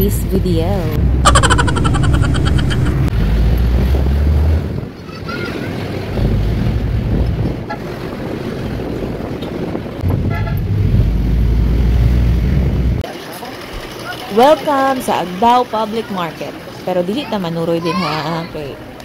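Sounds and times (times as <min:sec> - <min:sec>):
vehicle engine and road noise: 0:00.0 - 0:17.8
wind buffeting microphone: 0:00.5 - 0:13.0
vehicle horn toot: 0:10.2 - 0:10.6.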